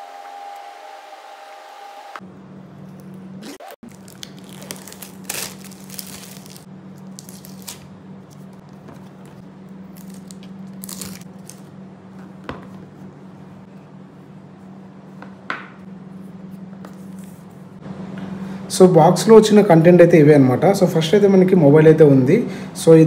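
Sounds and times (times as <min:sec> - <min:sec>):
steady low hum: 0:00.0 - 0:23.0
packaging rustling and tearing: 0:03.8 - 0:09.3, 0:09.9 - 0:11.7.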